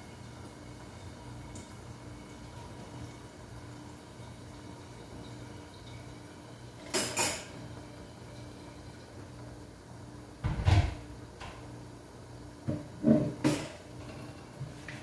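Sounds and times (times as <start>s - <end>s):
dishes knocking and clattering: 12.6s - 15.0s.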